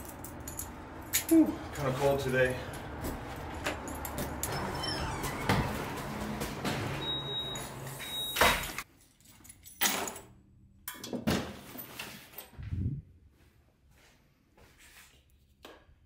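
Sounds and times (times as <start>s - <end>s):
outside noise: 0.0s - 9.9s.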